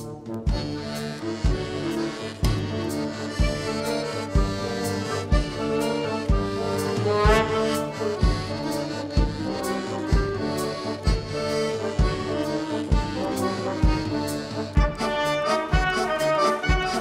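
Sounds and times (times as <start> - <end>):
accordion melody: 0.0 - 17.0
bass drum beats: 0.0 - 17.0
held wind chords: 0.0 - 17.0.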